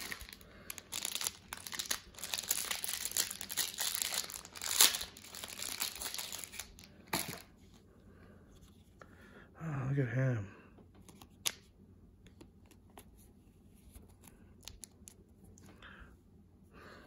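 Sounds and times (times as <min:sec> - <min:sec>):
crinkly plastic being handled: 0:00.0 - 0:07.6.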